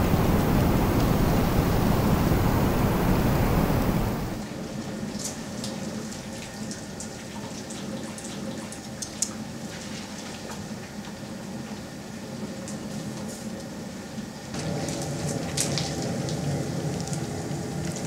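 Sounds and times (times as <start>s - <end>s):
water boiling hard: 0.0s - 4.4s.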